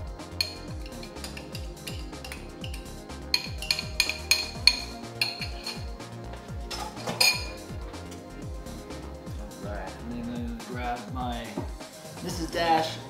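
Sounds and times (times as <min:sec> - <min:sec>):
background music with beat: 0:00.0 - 0:13.0
spoon scraping glass jar: 0:00.4 - 0:05.9, 0:06.7 - 0:07.6.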